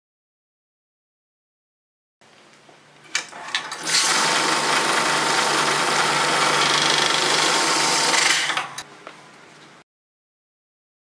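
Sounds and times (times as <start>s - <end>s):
money counter motor whirring: 3.4s - 8.8s.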